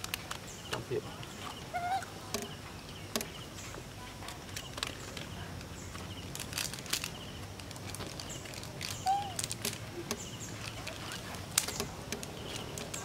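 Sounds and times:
faint high chirping: 0:08.2 - 0:13.0.

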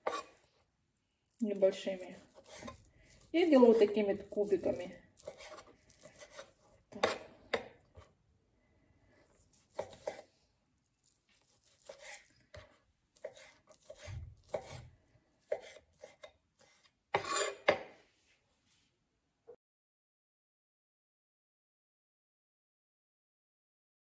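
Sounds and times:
knife chopping on wooden board: 0:00.0 - 0:00.3, 0:02.2 - 0:03.2, 0:05.2 - 0:08.1, 0:09.6 - 0:10.2, 0:11.4 - 0:18.0.

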